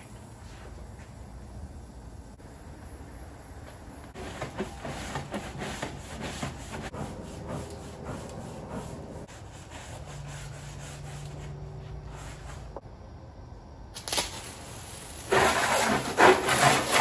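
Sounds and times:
scrub brush rasping: 0:04.2 - 0:12.8, 0:15.2 - 0:17.0.

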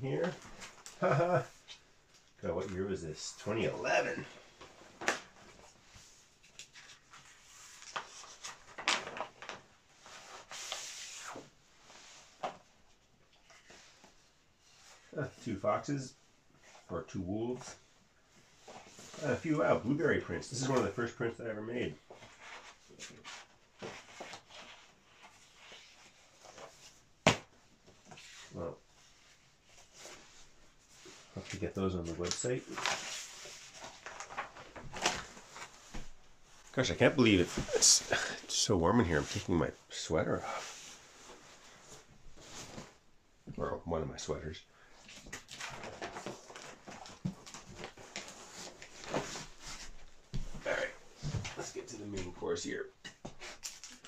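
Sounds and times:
plastic sheets and paper rustling: 0:29.4 - 0:39.6, 0:45.1 - 0:51.9.

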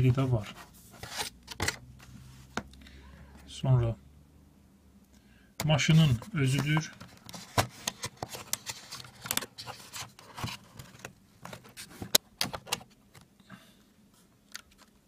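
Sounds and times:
cardboard and foam packaging rustling: 0:05.9 - 0:12.9.

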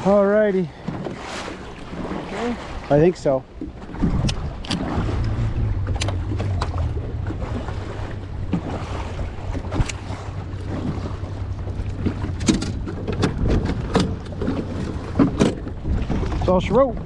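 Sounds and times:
waves lapping against boat hull: 0:00.0 - 0:17.0
wind buffeting microphone: 0:01.6 - 0:17.0
low steady hum: 0:02.7 - 0:15.9
sharp clicks and knocks: 0:03.6 - 0:07.4, 0:09.5 - 0:10.0, 0:11.9 - 0:15.8.

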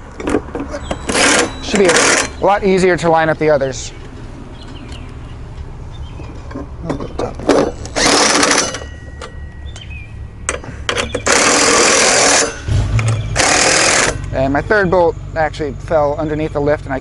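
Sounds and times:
cordless drill running: 0:08.0 - 0:08.7.

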